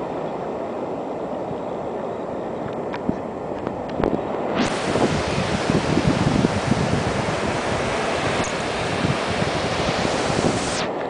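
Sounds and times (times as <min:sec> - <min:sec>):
wind buffeting microphone: 0:02.5 - 0:11.0
ocean surf breaking: 0:03.2 - 0:11.0.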